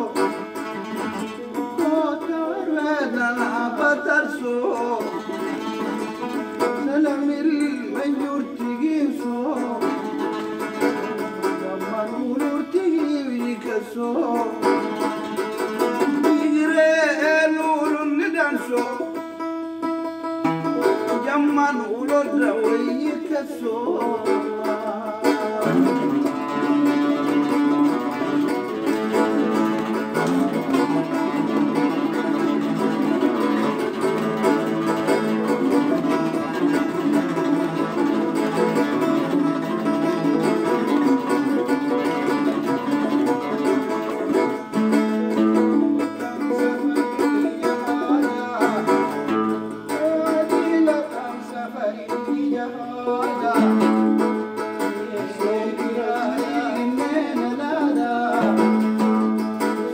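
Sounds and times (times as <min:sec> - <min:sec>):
oud playing: 0:00.0 - 0:59.9
plucked lyre: 0:00.0 - 0:59.9.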